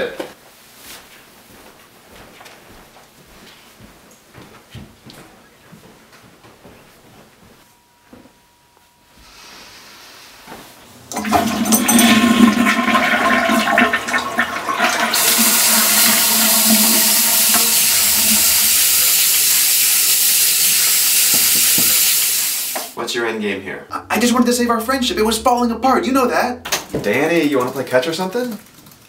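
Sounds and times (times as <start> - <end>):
running water hiss: 9.2 - 23.0
toilet flushing: 11.0 - 23.0.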